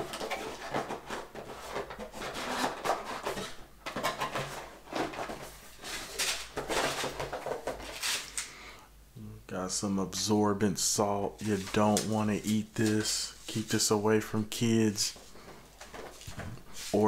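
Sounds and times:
packaging rustling and scraping: 0.0s - 8.5s, 11.3s - 13.7s, 15.0s - 17.0s.

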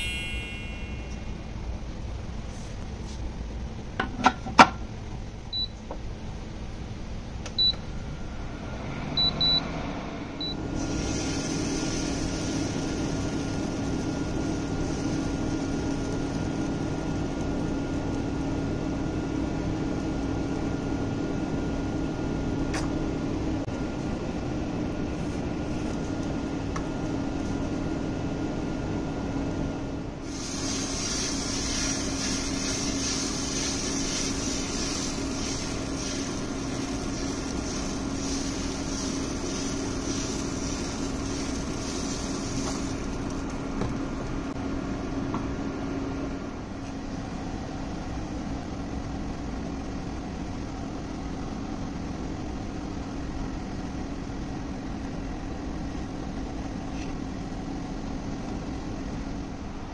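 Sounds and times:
fan motor hum: 0.0s - 59.9s
batter sizzling on hot pan: 10.8s - 18.0s, 30.3s - 43.6s.

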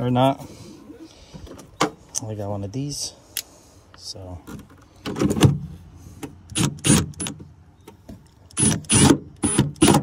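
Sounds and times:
impact driver driving screws: 6.5s - 7.4s, 8.5s - 10.0s.

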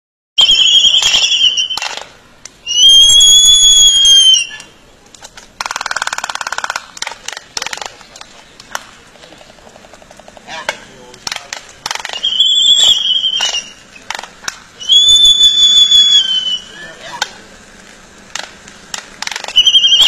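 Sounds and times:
albatross whistled calls: 0.4s - 2.0s, 2.6s - 4.8s, 12.0s - 14.1s, 14.8s - 17.2s, 19.4s - 20.0s
bill clacking rattle: 5.1s - 15.0s.

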